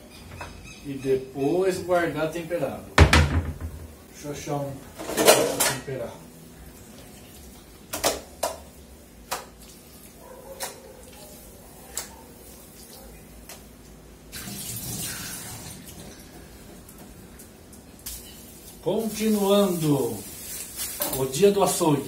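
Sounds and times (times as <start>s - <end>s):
sharp knocks: 3.0s - 4.0s.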